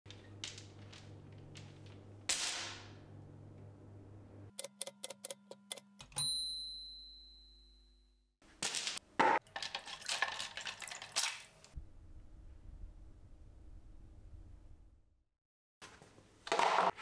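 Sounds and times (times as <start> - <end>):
low hum: 2.9 - 4.6, 11.8 - 15.2
typewriter bell ding: 6.1 - 7.8.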